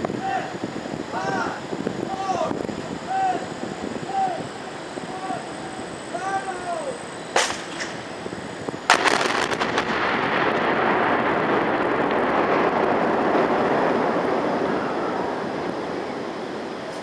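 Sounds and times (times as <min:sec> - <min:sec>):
explosive charges cracking: 0:07.3 - 0:17.0
rumble of collapsing steel: 0:07.4 - 0:17.0.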